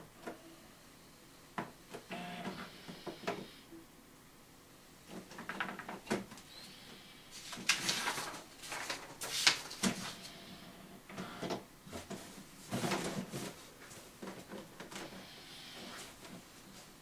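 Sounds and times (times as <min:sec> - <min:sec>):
paper rustling and scraping: 0:07.4 - 0:10.4, 0:11.9 - 0:14.1.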